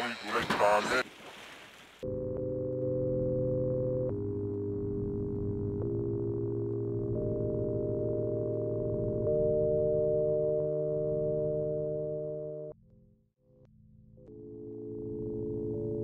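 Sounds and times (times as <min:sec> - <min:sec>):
soft synthesizer chords: 0:02.0 - 0:12.8.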